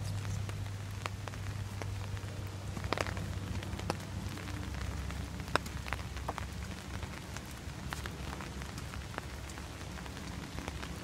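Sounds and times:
steady rain: 0:00.0 - 0:11.0.

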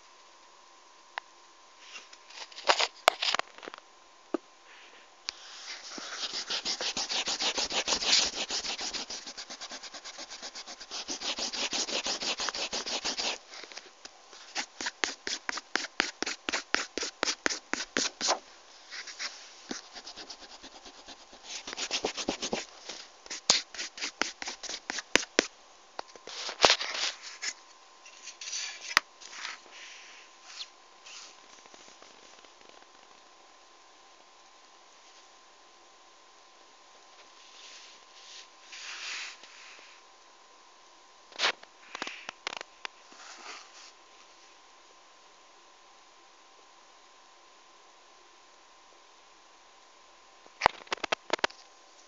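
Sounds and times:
scratchy rubbing on paper: 0:05.4 - 0:13.4, 0:14.4 - 0:25.5.

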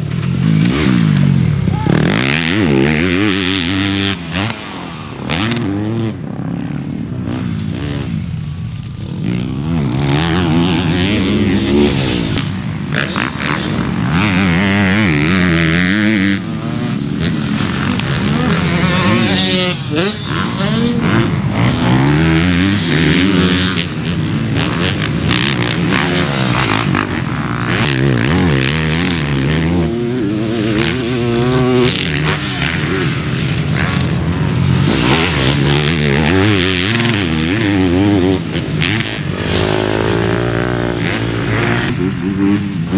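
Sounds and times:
motocross bike engines revving: 0:00.0 - 0:42.9.

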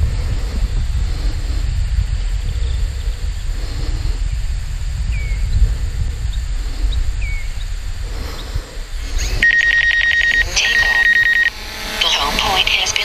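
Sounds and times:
wind buffeting microphone: 0:00.0 - 0:13.0
birds chirping: 0:02.2 - 0:13.0
high pulsing tone: 0:09.0 - 0:13.0.

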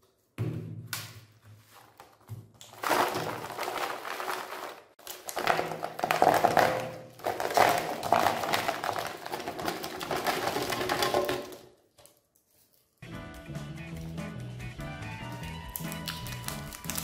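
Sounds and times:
chocolate bars clattering onto tray: 0:02.8 - 0:11.7.

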